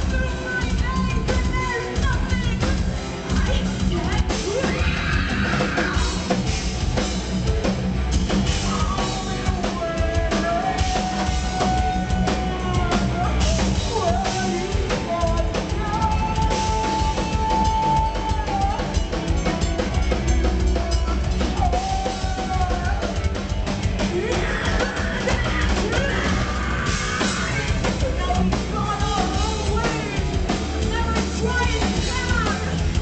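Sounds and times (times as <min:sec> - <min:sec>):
metal band playing: 0:00.0 - 0:33.0
woman singing long notes: 0:08.6 - 0:19.0.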